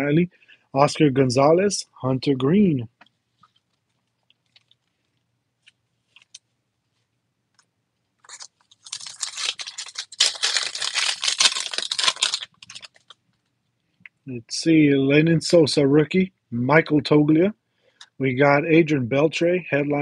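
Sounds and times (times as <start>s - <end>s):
foil wrapper crinkling and tearing: 8.2s - 13.2s.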